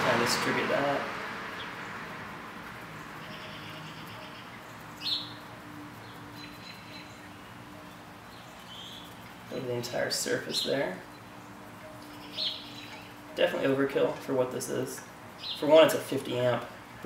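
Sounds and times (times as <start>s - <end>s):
background hiss: 0.0s - 17.0s
faint steady hum: 0.0s - 17.0s.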